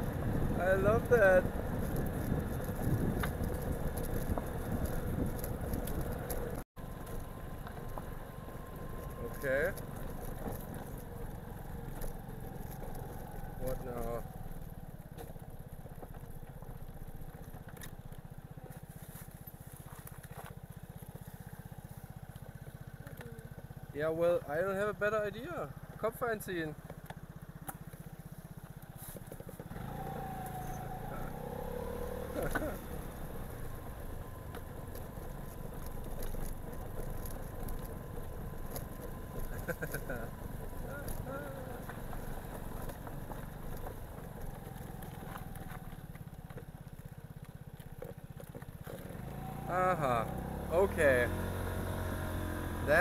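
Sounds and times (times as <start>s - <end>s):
scooter engine puttering: 0.0s - 53.0s
wind and road noise: 0.0s - 53.0s.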